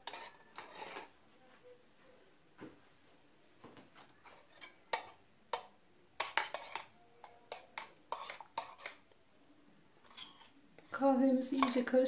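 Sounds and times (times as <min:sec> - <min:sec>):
metal spoon stirring in metal pot: 0:00.0 - 0:01.2, 0:04.1 - 0:09.2, 0:10.0 - 0:12.0.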